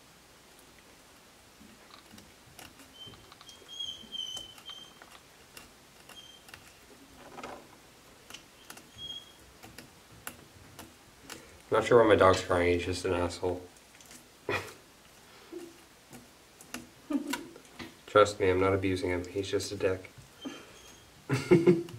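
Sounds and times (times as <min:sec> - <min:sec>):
dog whimpering: 0:20.4 - 0:21.2.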